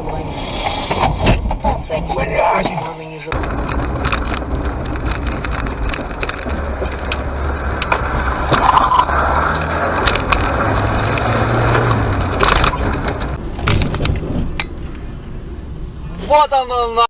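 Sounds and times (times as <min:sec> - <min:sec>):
car engine and tyre noise: 0:00.0 - 0:17.0
sharp knocks and rattles: 0:03.3 - 0:14.8.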